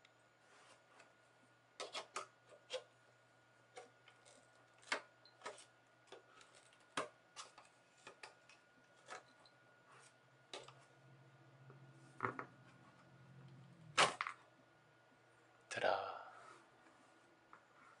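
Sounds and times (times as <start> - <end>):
knife blade scraping plastic case: 1.8 - 2.9.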